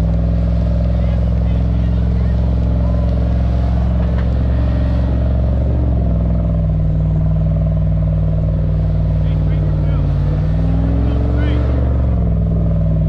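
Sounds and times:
vehicle engine running under load: 0:00.0 - 0:13.0.

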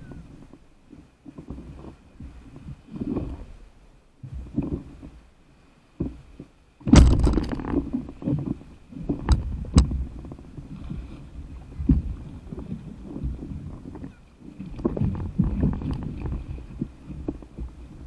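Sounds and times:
water sloshing against board: 0:00.0 - 0:18.0.

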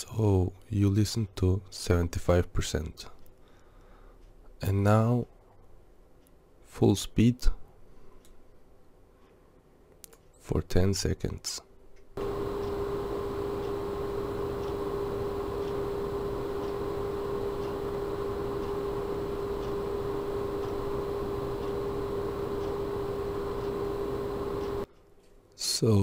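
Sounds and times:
computer case fans spinning: 0:12.2 - 0:24.9
water pump whirring: 0:12.2 - 0:24.9.

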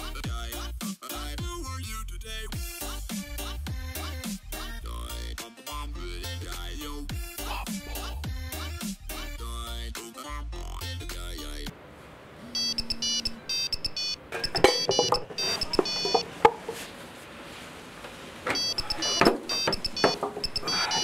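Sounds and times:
music: 0:00.0 - 0:11.7
high-pitched electronic alarm beeps: 0:12.6 - 0:16.2, 0:18.5 - 0:21.0.

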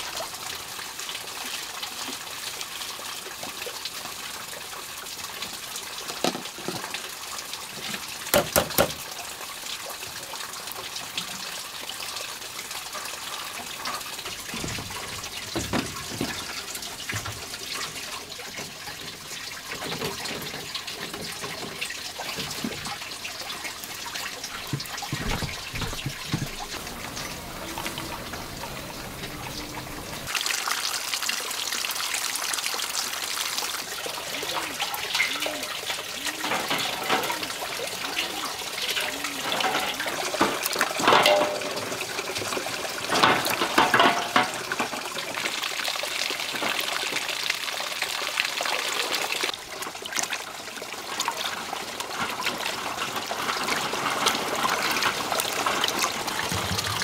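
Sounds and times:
water splashing in a basin: 0:00.0 - 0:57.0
eggs clattering: 0:39.1 - 0:45.1.

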